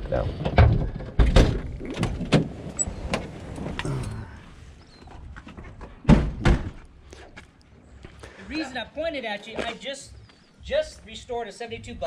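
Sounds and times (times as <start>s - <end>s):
loud thumps: 6.0s - 6.9s.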